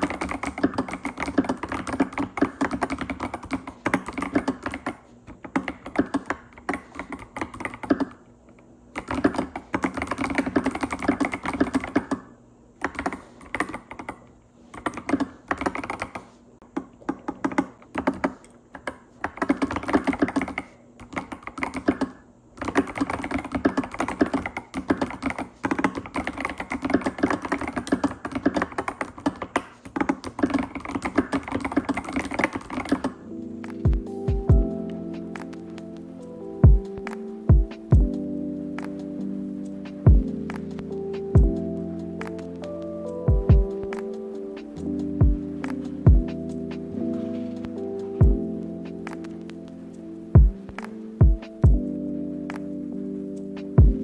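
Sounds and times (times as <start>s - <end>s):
mechanical keyboard typing clacks: 0.0s - 8.2s, 8.9s - 35.8s, 39.7s - 47.0s.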